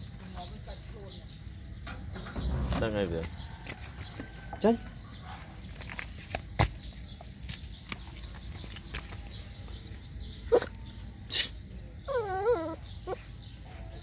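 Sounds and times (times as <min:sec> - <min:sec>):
animal calls: 0:10.5 - 0:13.3.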